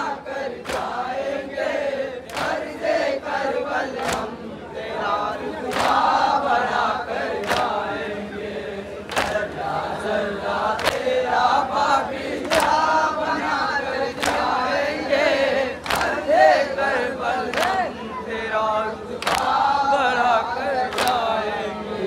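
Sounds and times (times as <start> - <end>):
men chanting in unison: 0.0 - 22.0
collective chest-beating slaps: 0.6 - 1.0, 2.2 - 2.6, 4.0 - 4.4, 7.4 - 7.8, 9.1 - 9.5, 10.8 - 11.2, 12.4 - 12.9, 14.2 - 14.6, 15.8 - 16.2, 19.2 - 19.6.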